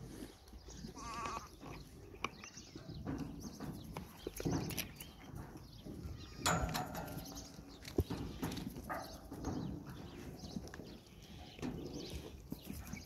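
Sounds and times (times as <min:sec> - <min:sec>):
goats bleating: 0:01.0 - 0:01.5.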